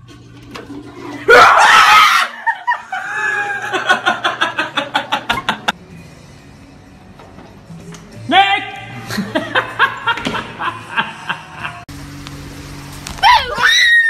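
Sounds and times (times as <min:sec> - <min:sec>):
loud scream: 0:01.3 - 0:03.7, 0:13.2 - 0:14.0
man laughing hard: 0:02.1 - 0:05.7, 0:09.0 - 0:11.8.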